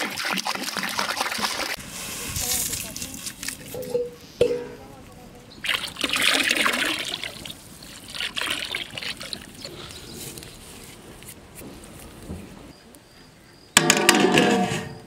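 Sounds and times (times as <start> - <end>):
oil pouring into water: 5.6 - 9.7.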